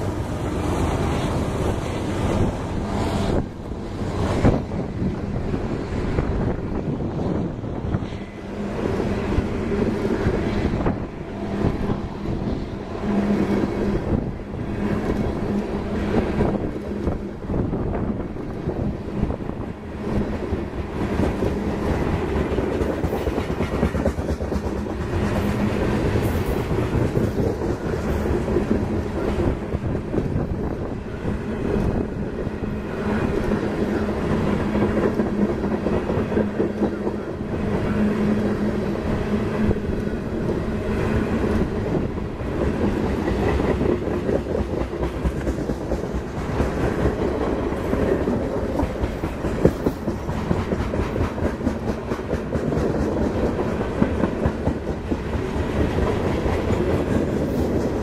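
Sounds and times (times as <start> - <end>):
wheel and rail rumble: 0.0 - 58.0
wheels clacking over rail joints: 20.1 - 58.0.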